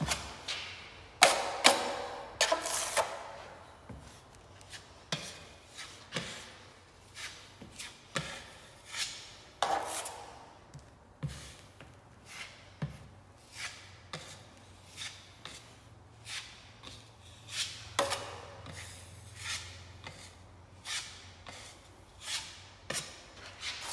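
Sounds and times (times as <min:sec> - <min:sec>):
drywall knife scraping wall: 0:00.0 - 0:03.5.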